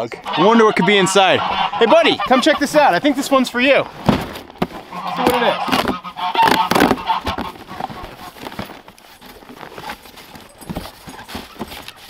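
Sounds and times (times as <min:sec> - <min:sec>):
geese honking: 0:00.0 - 0:04.0, 0:04.8 - 0:08.4
cardboard box being opened: 0:02.5 - 0:12.0.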